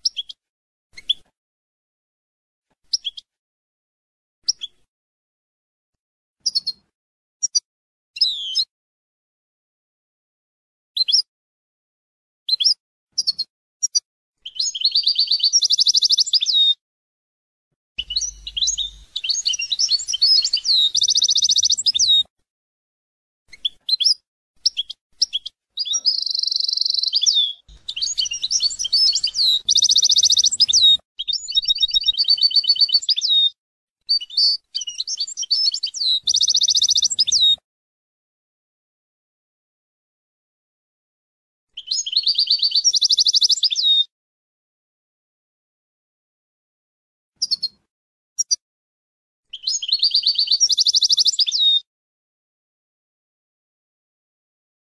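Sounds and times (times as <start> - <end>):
goldfinch singing: 18.0 - 22.3, 24.7 - 33.5, 34.1 - 37.6.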